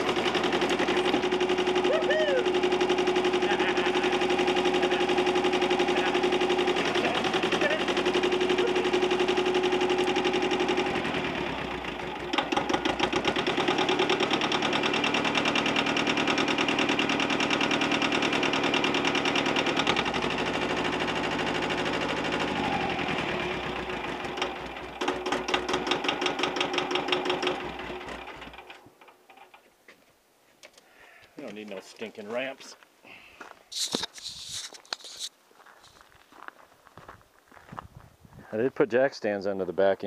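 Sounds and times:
tractor diesel engine running: 0:00.0 - 0:29.0.

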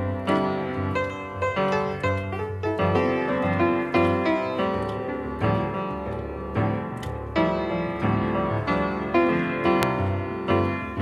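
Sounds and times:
instrumental keyboard music: 0:00.0 - 0:11.0.

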